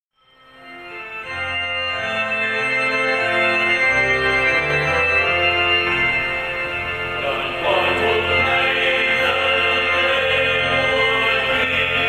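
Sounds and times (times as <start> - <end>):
organ playing hymn: 0.2 - 12.0.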